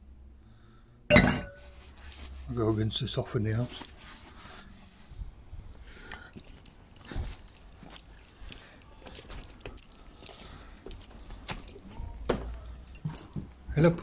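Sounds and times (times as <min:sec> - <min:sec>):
faint metallic jingle: 0:06.2 - 0:14.0.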